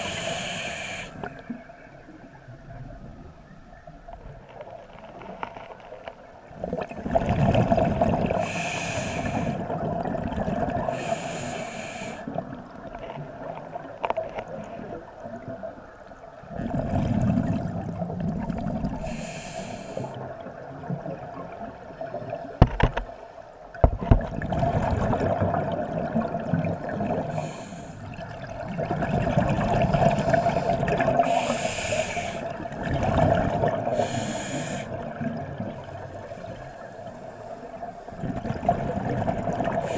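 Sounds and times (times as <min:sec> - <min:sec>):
regulator hissing inhalations: 0:00.0 - 0:01.2, 0:08.4 - 0:09.6, 0:10.9 - 0:12.3, 0:19.0 - 0:20.2, 0:27.3 - 0:28.1, 0:30.2 - 0:32.5, 0:33.9 - 0:35.0.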